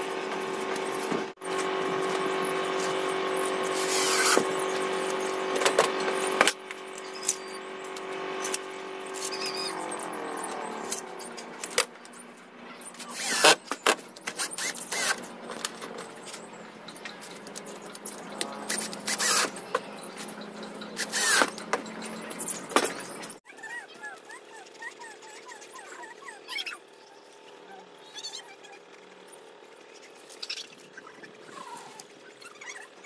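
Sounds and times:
cordless drill running: 1.6 - 7.0, 13.1 - 13.6, 14.3 - 15.2, 18.7 - 19.6, 21.0 - 21.5.

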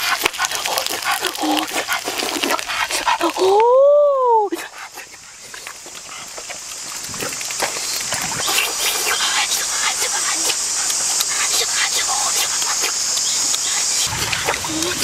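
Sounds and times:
food sizzling on hot stone: 5.1 - 15.0.

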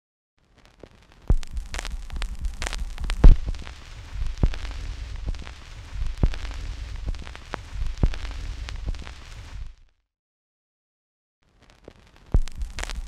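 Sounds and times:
vinyl crackle and pops: 0.4 - 10.0, 11.4 - 13.0
low rumble: 1.3 - 9.8.

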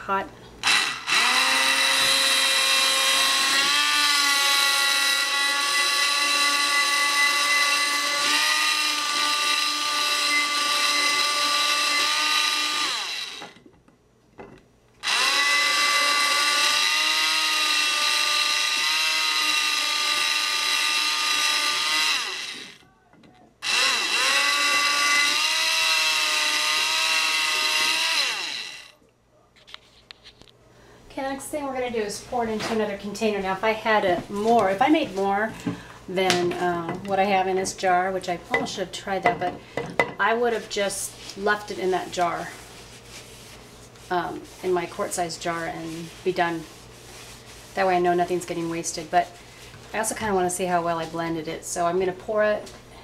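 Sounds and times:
stick blender motor whine: 0.6 - 13.6, 15.0 - 22.9, 23.6 - 29.0.

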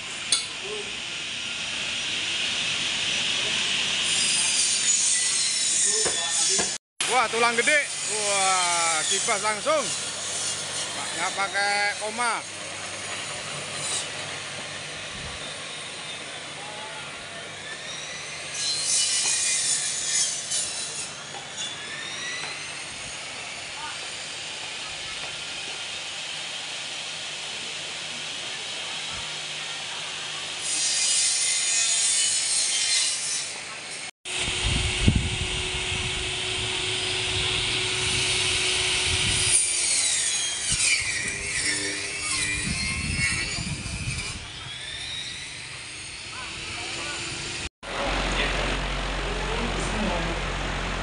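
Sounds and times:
band saw whine: 0.0 - 51.0
saw blade rasping through meat: 4.0 - 14.3, 17.8 - 23.2, 37.8 - 47.3
motor whine falling in pitch: 34.3 - 39.7.

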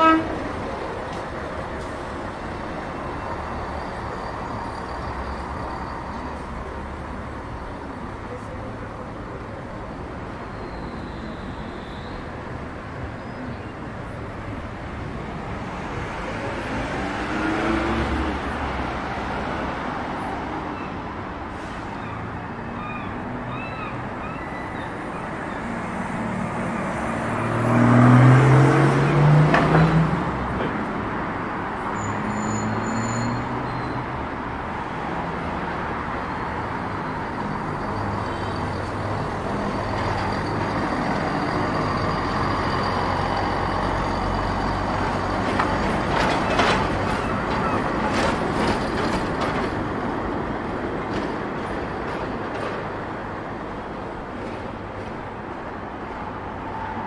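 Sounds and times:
cars passing on street: 0.0 - 57.0
vehicle accelerating past: 27.5 - 29.5.

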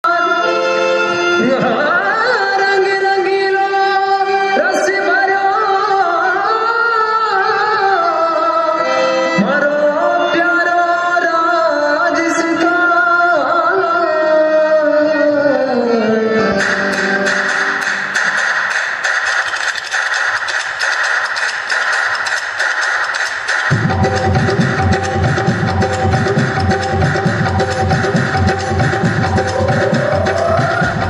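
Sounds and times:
instrumental accompaniment: 0.1 - 12.4, 15.7 - 31.0
person singing long sliding notes: 23.7 - 31.0.

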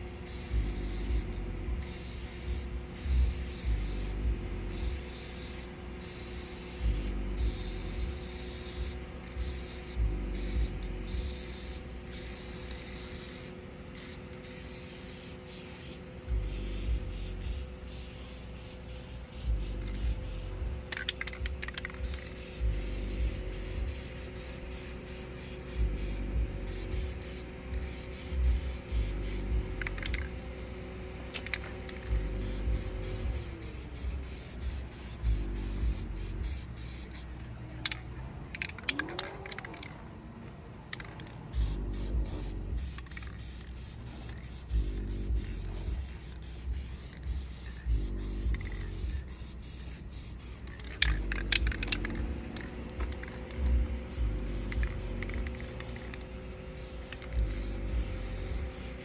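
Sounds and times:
music with pulsing bass beat: 0.0 - 5.3, 6.3 - 12.8, 16.2 - 30.3, 32.0 - 37.2, 41.6 - 56.1, 56.9 - 59.0
aerosol spray paint hissing: 0.0 - 30.3, 31.4 - 38.0, 41.0 - 56.2, 56.8 - 59.0
spray can clicks: 20.9 - 22.4.

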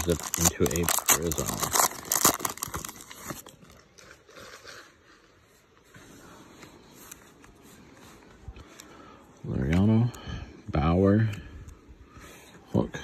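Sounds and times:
cards rustling and clicking: 0.0 - 4.7
foil wrapper crinkling: 0.0 - 5.4.

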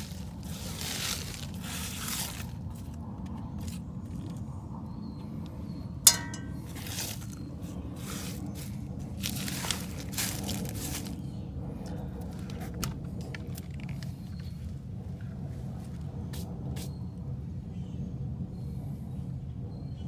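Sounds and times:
steady low hum: 0.0 - 20.0
sharp metallic clink: 6.0 - 7.4.

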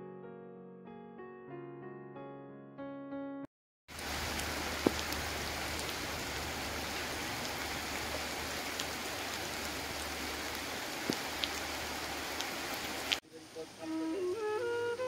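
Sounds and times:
hiss of falling water: 3.9 - 15.0
sharp drip-like clicks: 4.3 - 6.0, 11.0 - 11.6.

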